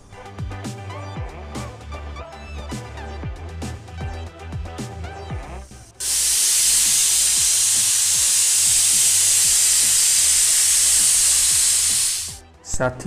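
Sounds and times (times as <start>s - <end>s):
pressure cooker steam hissing: 5.9s - 12.4s.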